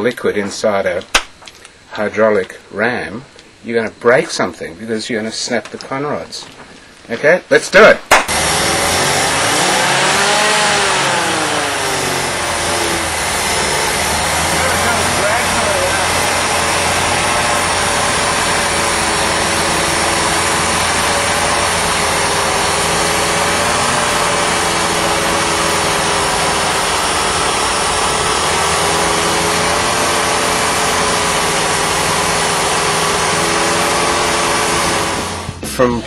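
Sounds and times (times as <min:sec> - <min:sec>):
car engine running: 0:08.3 - 0:36.0.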